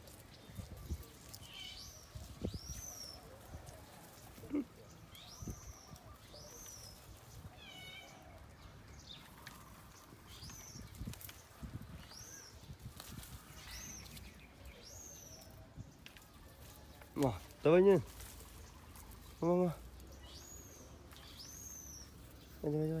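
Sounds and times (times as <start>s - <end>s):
high-pitched squeaky calls: 0.8s - 2.0s
tree branches knocking and rustling: 9.1s - 15.0s, 15.9s - 20.4s.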